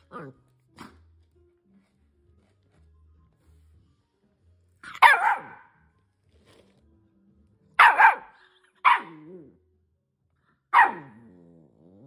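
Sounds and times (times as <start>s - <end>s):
puppy growling: 0.0s - 1.0s, 8.4s - 9.6s, 10.8s - 12.0s
puppy barking: 4.8s - 5.8s, 7.8s - 9.5s, 10.7s - 11.3s.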